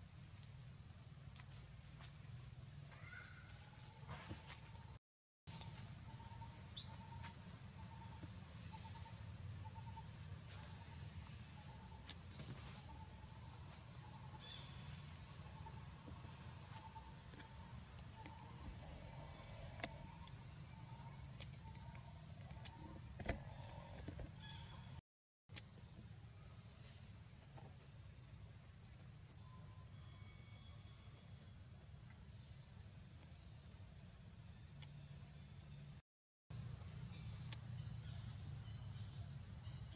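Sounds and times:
insects droning: 0.0s - 39.9s.

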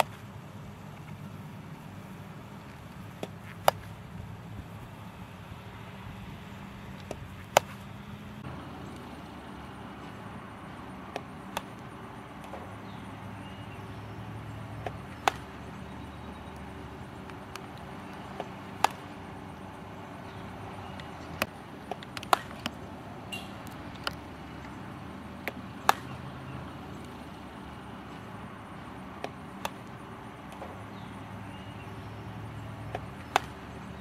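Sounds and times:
bat hitting ball crack: 3.1s - 3.9s, 7.0s - 7.8s, 11.1s - 11.8s, 14.8s - 15.6s, 17.2s - 19.1s, 21.4s - 22.7s, 25.4s - 26.3s, 32.9s - 33.7s.

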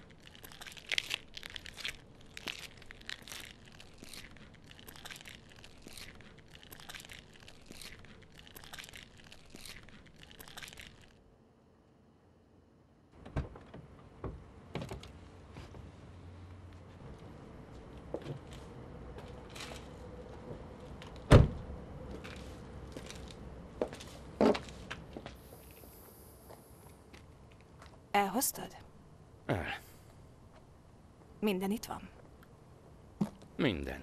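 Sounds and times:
crunching footsteps: 22.1s - 28.0s.

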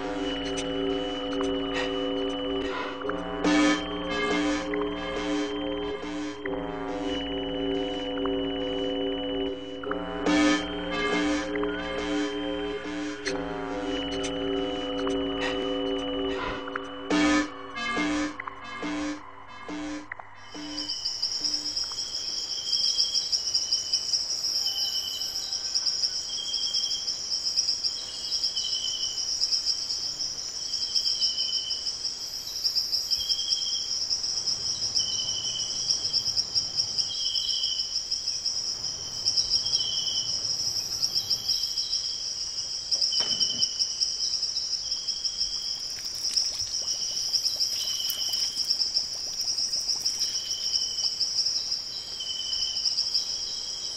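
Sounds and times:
low chirps: 0.0s - 23.0s, 42.9s - 53.6s
crickets trilling: 0.0s - 53.9s.

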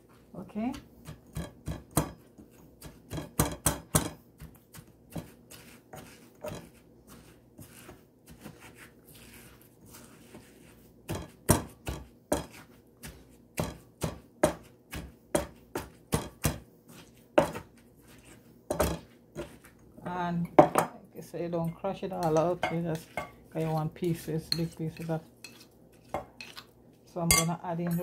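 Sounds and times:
pestle pounding in mortar: 0.7s - 2.2s, 2.8s - 6.8s, 11.1s - 16.6s.

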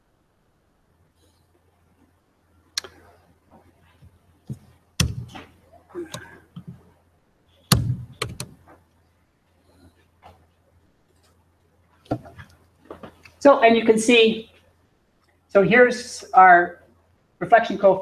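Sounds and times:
sharp knocks and thumps: 4.4s - 6.8s, 7.7s - 8.8s, 12.0s - 13.2s.

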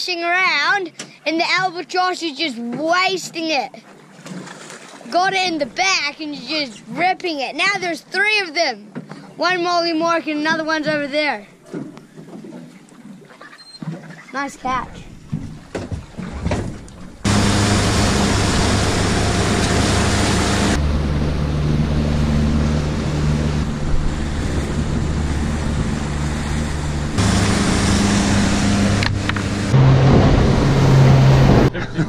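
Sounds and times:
water rushing past hull: 3.8s - 5.8s, 12.2s - 31.7s
outboard motor running: 15.1s - 31.7s
wind noise: 17.2s - 31.7s.

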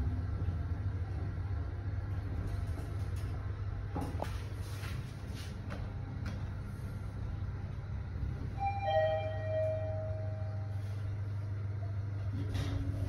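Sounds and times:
elevator hum: 0.0s - 13.0s
two-tone electronic chime: 8.6s - 10.6s.

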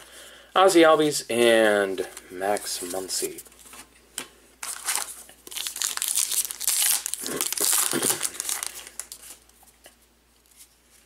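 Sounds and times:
foil wrapper tearing and crinkling: 4.6s - 9.4s.

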